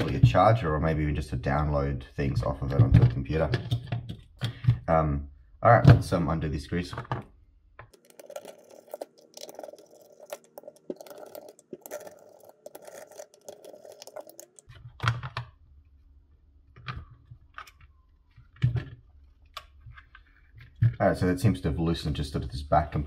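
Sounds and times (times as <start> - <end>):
screwdriver scratchy ticking: 7.9 - 14.7.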